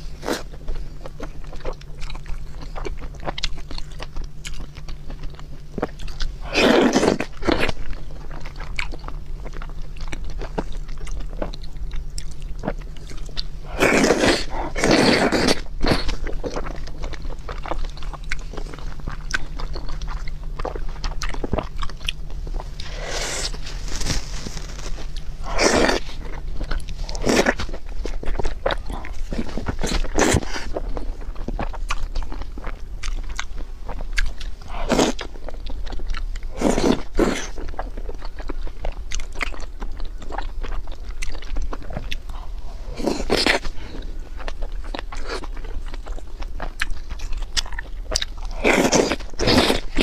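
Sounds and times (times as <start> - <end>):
chewing with wet mouth clicks: 0.4 - 23.5, 25.1 - 50.0
slurping noodles: 13.7 - 16.2.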